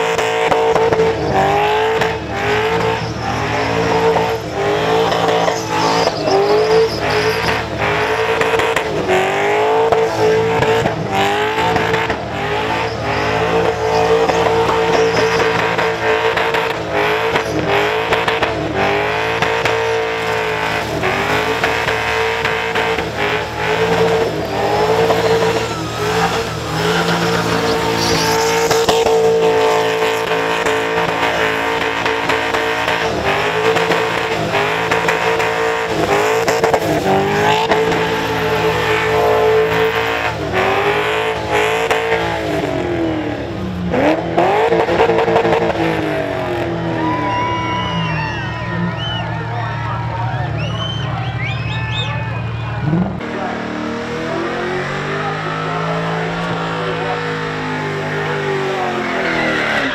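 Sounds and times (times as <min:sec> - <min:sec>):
car engine revving high: 0:00.0 - 0:59.9
tyres squealing: 0:02.3 - 0:08.7, 0:12.5 - 0:18.2, 0:18.8 - 0:42.3, 0:54.5 - 0:59.9.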